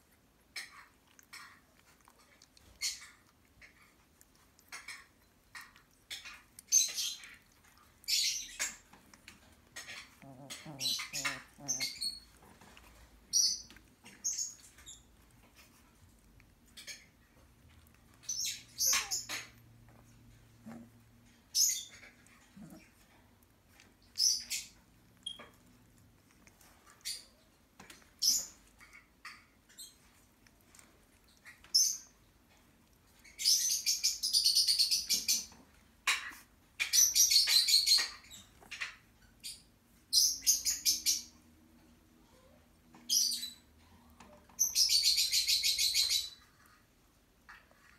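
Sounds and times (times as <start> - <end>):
puppies squeaking: 0.6 - 15.9, 16.6 - 20.0, 20.6 - 32.2
puppies squealing: 9.7 - 12.8, 18.3 - 19.6.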